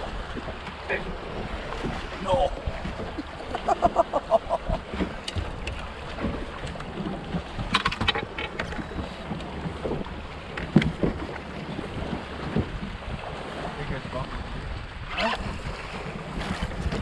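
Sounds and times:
waves slapping boat hull: 0.0s - 17.0s
wind buffeting microphone: 0.0s - 17.0s
sharp knock on boat: 1.4s - 13.3s.

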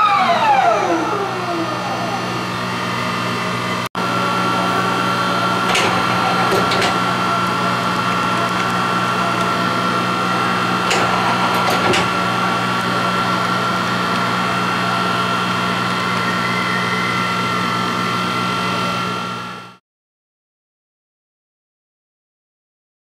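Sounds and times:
lathe humming and whining: 0.0s - 19.8s.

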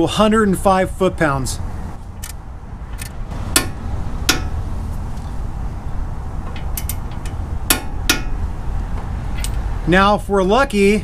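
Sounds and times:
torque wrench clicking: 6.5s - 8.4s.

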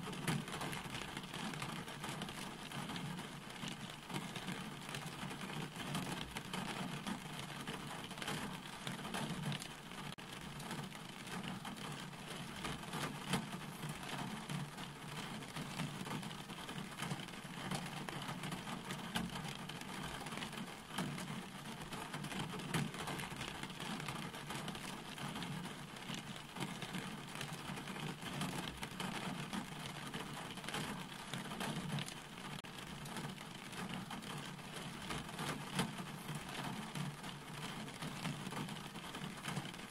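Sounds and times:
rain falling: 0.0s - 39.9s.

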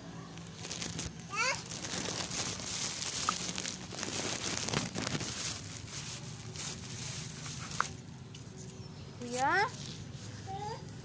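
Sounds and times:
plastic bag crinkling: 0.3s - 8.1s.

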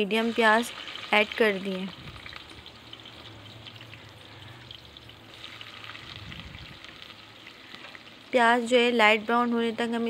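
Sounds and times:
onions sizzling in hot oil: 0.0s - 10.0s
small crackles: 0.7s - 8.5s.

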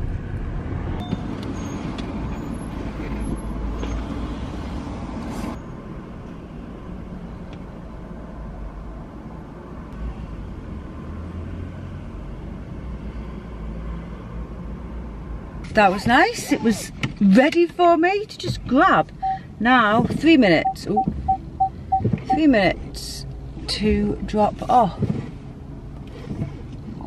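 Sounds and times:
road traffic: 0.0s - 27.0s.

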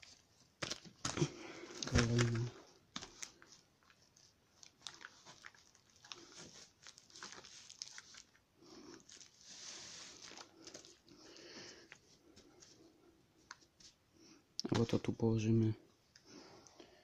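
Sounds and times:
soft rustling scrape: 9.0s - 11.0s.

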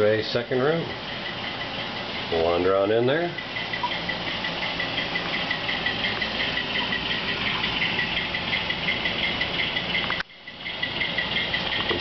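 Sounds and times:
high-pitched pulsing: 0.0s - 12.0s
model locomotive diesel idle: 0.0s - 12.0s.

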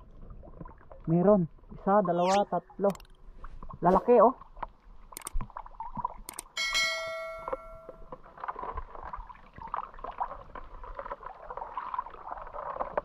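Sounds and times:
water dripping and trickling: 2.8s - 13.0s
sharp ringing note: 6.6s - 8.1s.

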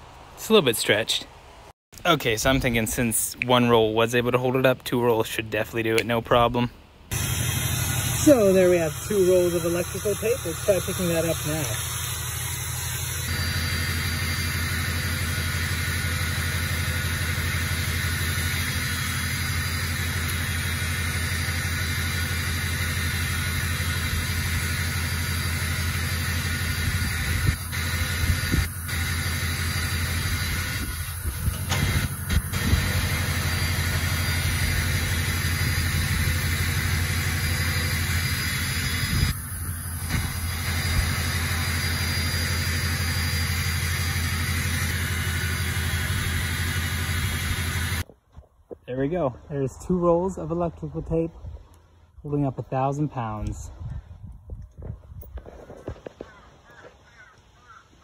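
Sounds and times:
engine droning: 7.1s - 48.1s.

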